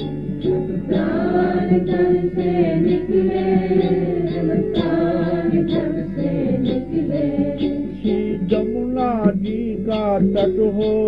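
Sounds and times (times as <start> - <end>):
short rhythmic strikes: 0.0 - 11.0
group singing a devotional chant: 0.9 - 8.6.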